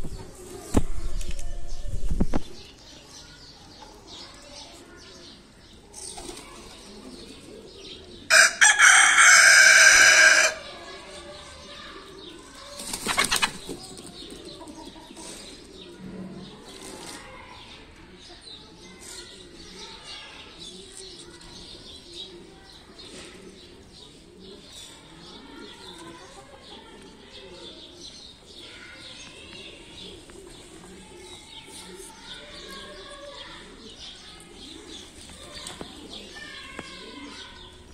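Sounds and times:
pigeons cooing: 5.8 - 17.2, 20.5 - 37.9
wings flapping: 12.8 - 14.1.

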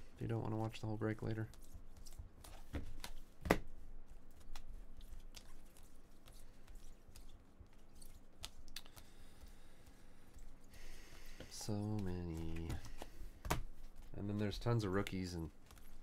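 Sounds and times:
trading cards clicking and rustling: 4.3 - 16.0.

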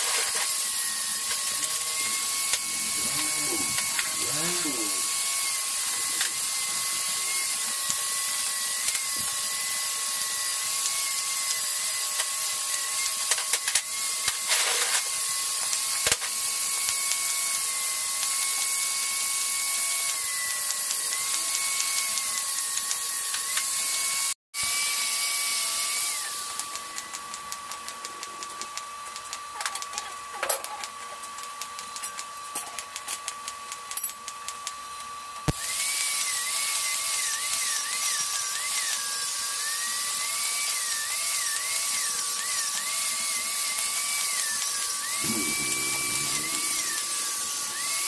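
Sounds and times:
welding arc hissing: 0.0 - 19.6, 35.5 - 48.0
constant electrical whine: 0.0 - 22.2, 25.6 - 48.0.

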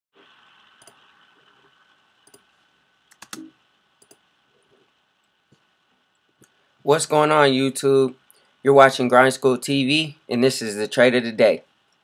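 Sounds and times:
faint hum: 0.2 - 12.0
mouse and keyboard clicks: 3.1 - 4.2.

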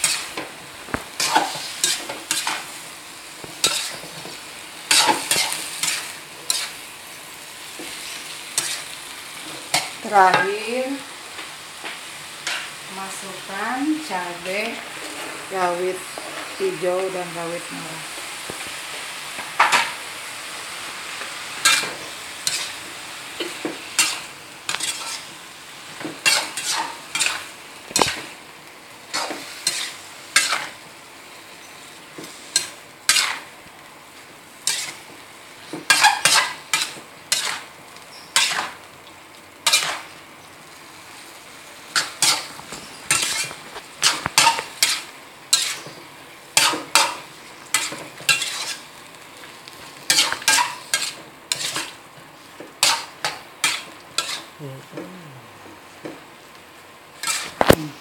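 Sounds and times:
metal spatula scraping wok: 0.0 - 0.4, 3.6 - 6.8, 13.5 - 17.0, 21.6 - 22.8, 23.4 - 25.3, 26.2 - 28.3, 29.1 - 30.8, 31.6 - 33.5, 34.6 - 35.0, 35.8 - 38.8, 39.6 - 40.1, 41.9 - 46.0, 46.6 - 48.9, 50.0 - 52.0, 52.8 - 54.5, 57.2 - 57.7
frying sizzle: 0.0 - 58.0.

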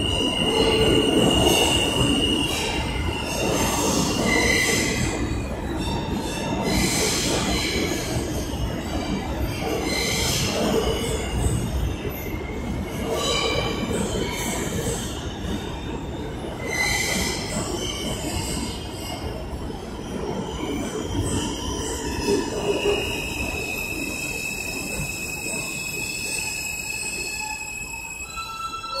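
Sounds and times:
subway train rumbling: 0.0 - 29.0
wheels squealing on rails: 0.0 - 29.0.

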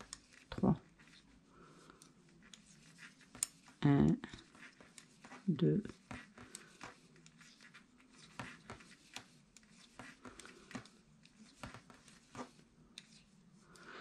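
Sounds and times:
knitting needles clicking: 2.0 - 7.4.

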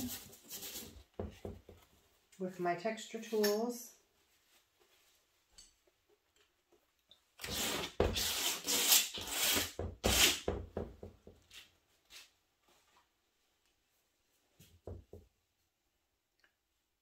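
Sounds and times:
tool scraping on paper: 7.4 - 10.5.

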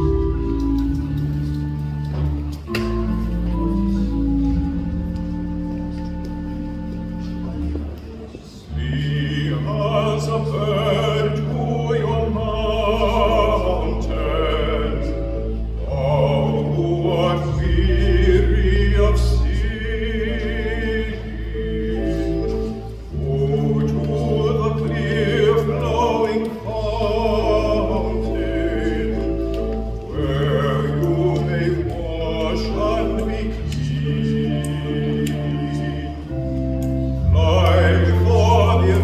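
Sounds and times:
sustained accompaniment chords: 0.0 - 39.0
baritone singing with vibrato: 8.5 - 39.0.

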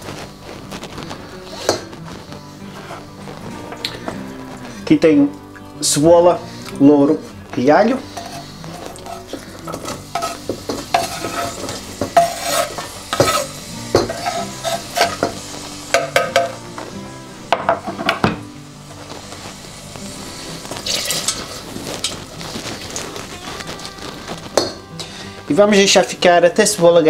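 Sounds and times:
onions sizzling in oil: 0.0 - 27.0
knife scraping chopping board: 8.2 - 15.3
spatula clinking against pot: 8.2 - 15.3.

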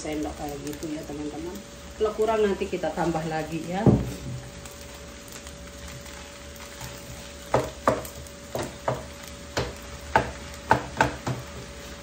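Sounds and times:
rice sizzling in a pan: 0.0 - 12.0
wooden spatula stirring rice: 2.9 - 12.0
spatula knocking against pan: 7.5 - 11.5.

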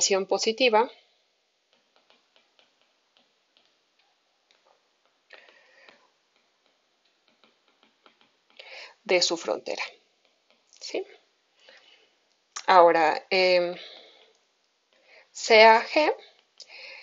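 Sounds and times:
stylus tapping on tablet screen: 1.7 - 11.3.

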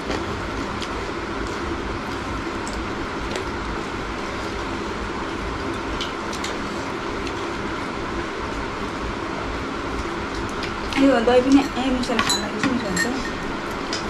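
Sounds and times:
low rumbling hum: 0.0 - 14.0
eating clicks and smacks: 2.0 - 3.6, 5.7 - 6.6.

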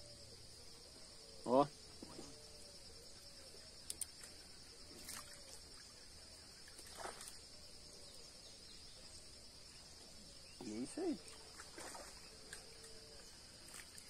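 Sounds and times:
insects droning: 0.0 - 14.0.

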